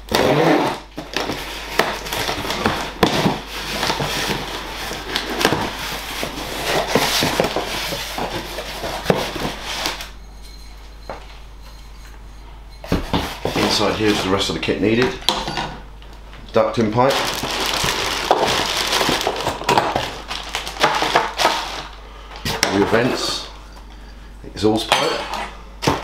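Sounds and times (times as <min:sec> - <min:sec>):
packing tape being slit: 0:00.0 - 0:10.1, 0:17.1 - 0:22.0
cardboard scraping and crinkling: 0:00.1 - 0:10.1, 0:12.9 - 0:14.5, 0:17.0 - 0:22.0, 0:22.6 - 0:23.4.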